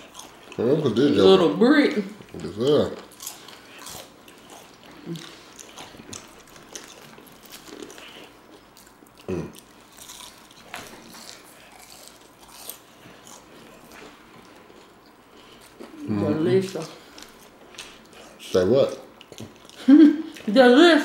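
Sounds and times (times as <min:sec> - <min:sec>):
crunchy chewing: 0:00.0 - 0:01.0, 0:02.2 - 0:16.0.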